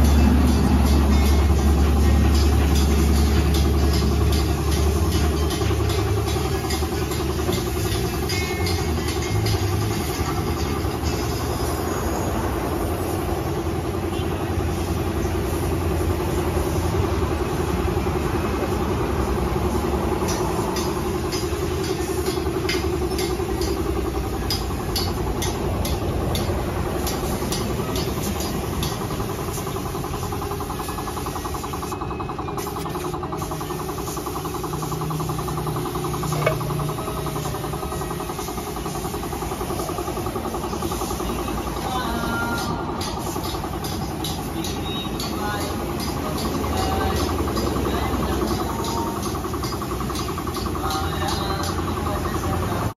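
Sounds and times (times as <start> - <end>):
air compressor humming: 0.0 - 52.9
spray gun hissing: 26.9 - 47.6.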